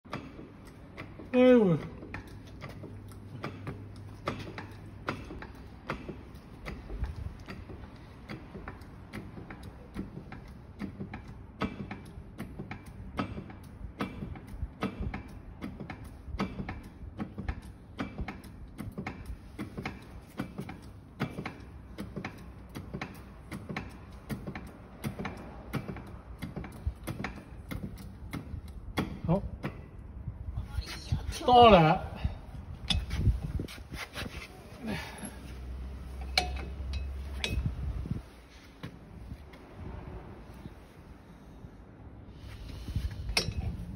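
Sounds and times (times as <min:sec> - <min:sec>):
metallic clicks and ticks: 0:00.1 - 0:29.8.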